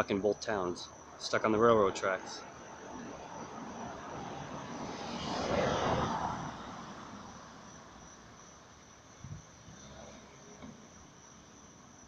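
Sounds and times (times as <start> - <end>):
high insect trill: 0.0 - 12.0
motor vehicle passing: 1.8 - 8.0.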